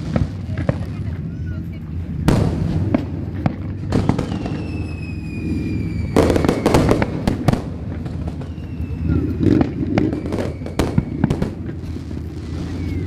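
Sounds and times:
crackling fireworks: 0:00.0 - 0:13.0
fireworks bursting with bangs: 0:00.0 - 0:13.0
high falling whistle: 0:04.1 - 0:07.1, 0:08.2 - 0:11.7, 0:12.5 - 0:13.0.

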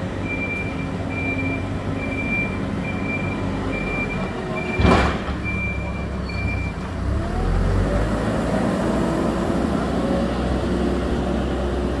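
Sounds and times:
diesel engine running: 0:00.0 - 0:12.0
reversing alarm beep: 0:00.2 - 0:06.8.

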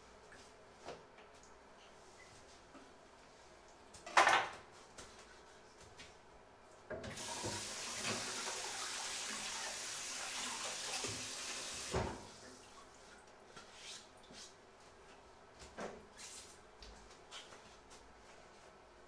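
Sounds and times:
tap water running into sink: 0:07.1 - 0:12.5.

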